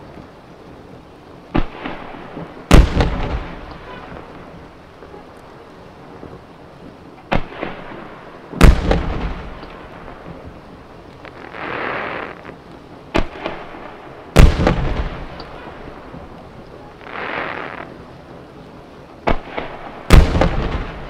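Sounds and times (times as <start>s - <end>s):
firework shells booming: 1.5s - 4.3s, 7.3s - 10.4s, 13.1s - 16.3s, 19.2s - 21.0s.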